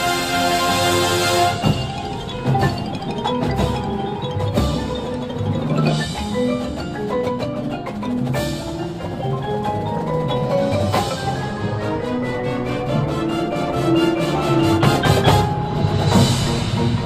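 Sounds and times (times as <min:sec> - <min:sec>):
marimbas playing quick runs: 0:00.0 - 0:17.0
drum hits: 0:14.1 - 0:17.0.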